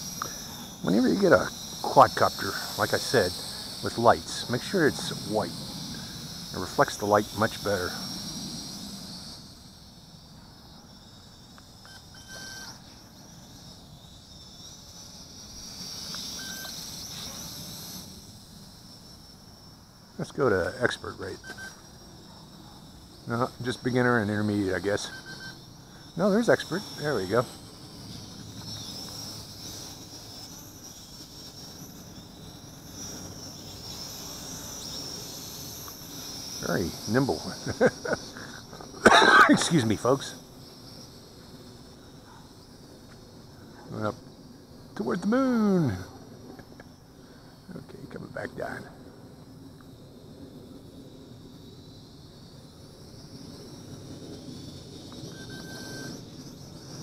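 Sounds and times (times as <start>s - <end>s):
quadcopter propellers whining: 0.0s - 51.6s, 52.2s - 57.0s
short beeps: 11.9s - 12.8s, 55.3s - 56.1s.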